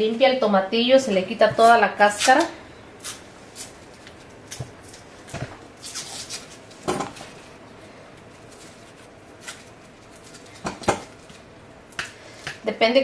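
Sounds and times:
husks crackling as peeled: 2.1s - 12.2s.

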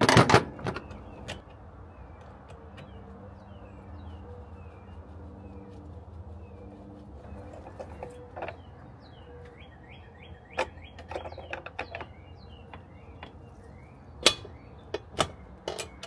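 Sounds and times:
bird chirping: 0.5s - 16.0s
metallic clicks and knocks: 10.5s - 13.4s, 14.2s - 16.0s.

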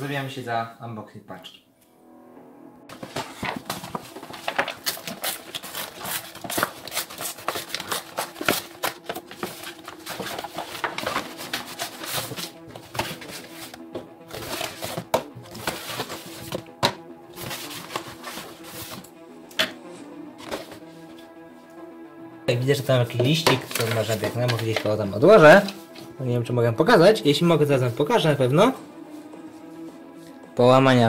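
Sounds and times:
plastic bag crinkling and tearing: 3.5s - 12.6s.

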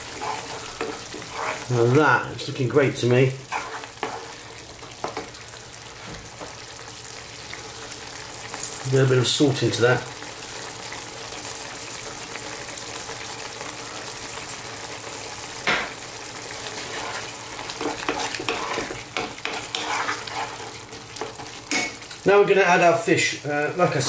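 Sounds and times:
wooden spoon scraping a pan: 0.0s - 6.6s, 16.5s - 22.2s
sauce sizzling in a pan: 0.0s - 24.0s.

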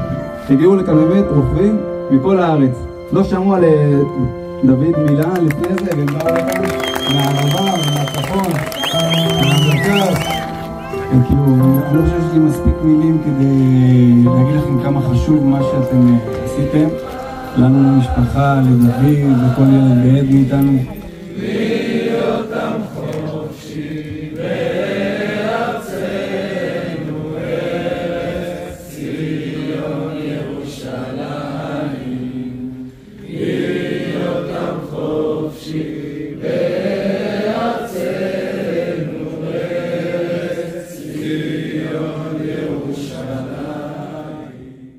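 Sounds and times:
crowd singing slow song: 13.5s - 44.9s.

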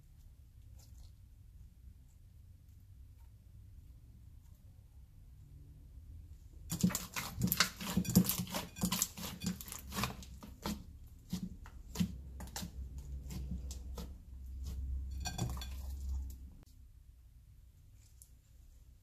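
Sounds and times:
slime squelching: 6.6s - 16.7s.

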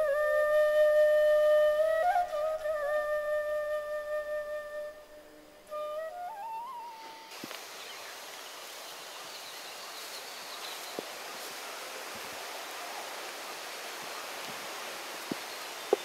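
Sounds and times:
flute phrase: 0.0s - 7.4s
outdoor hiss: 0.0s - 16.0s.

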